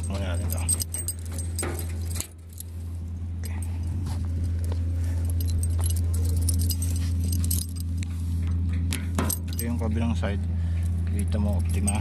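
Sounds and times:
keys jangling: 0.0 - 2.8, 3.4 - 8.0, 9.2 - 9.9, 10.8 - 12.0
steady low hum: 0.0 - 12.0.

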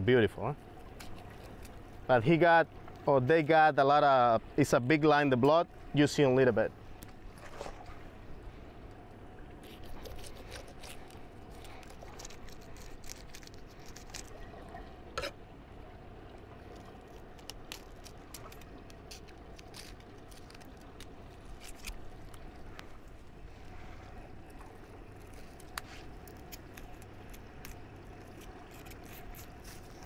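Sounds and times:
knife cutting fish skin: 9.6 - 14.4, 17.1 - 22.1, 25.3 - 30.0.

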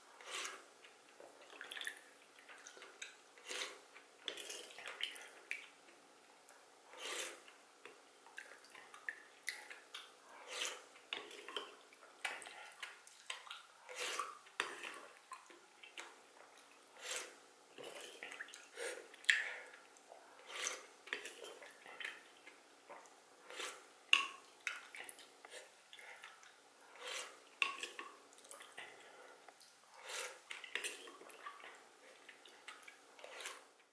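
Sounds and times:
soup slurping: 10.4 - 11.7, 22.9 - 23.9, 26.9 - 28.0, 33.2 - 33.8
spoon scraping earthenware pot: 27.0 - 28.0.

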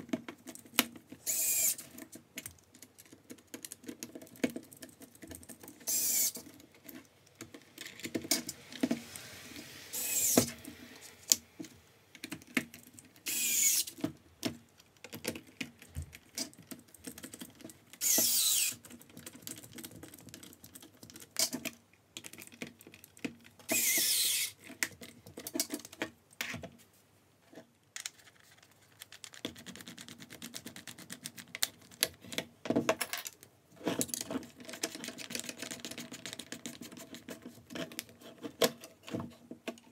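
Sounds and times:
electric screwdriver whirring: 1.2 - 1.8, 5.9 - 6.4, 9.2 - 11.1, 13.3 - 13.9, 18.0 - 18.8, 23.7 - 24.6.

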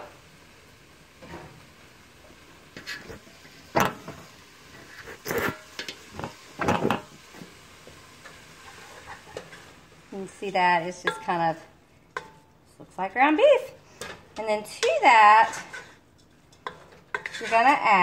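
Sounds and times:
kitchen knocks and clunks: 3.7 - 4.2, 6.2 - 7.1.

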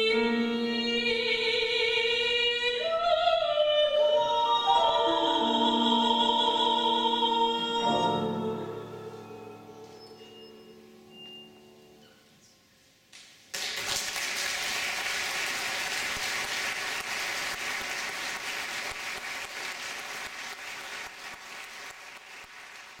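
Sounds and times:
classical music: 0.0 - 12.4
audience applause: 13.5 - 23.0.

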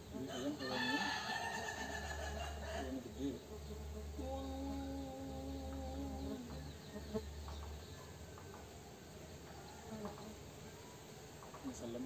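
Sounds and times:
faint insect buzzing: 0.0 - 12.0
low hum: 2.5 - 8.3.

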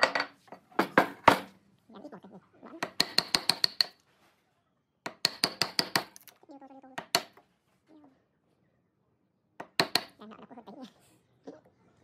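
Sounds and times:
hammer striking chisel: 2.8 - 4.0, 5.1 - 6.2, 9.6 - 10.1.

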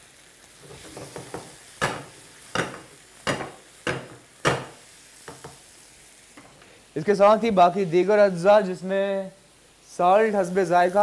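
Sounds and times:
oil sizzling: 0.0 - 11.0.

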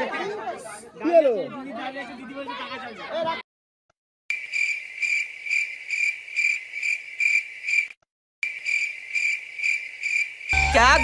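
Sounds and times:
crickets chirping: 4.3 - 11.0.

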